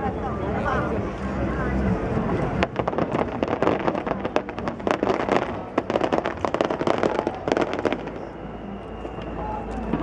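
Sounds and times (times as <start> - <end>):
fireworks cracking and popping: 2.4 - 8.4.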